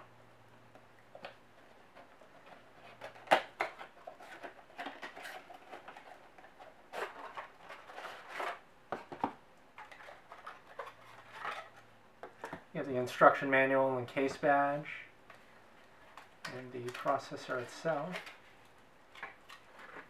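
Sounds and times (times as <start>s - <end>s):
cardboard scraping and rustling: 1.6s - 11.8s.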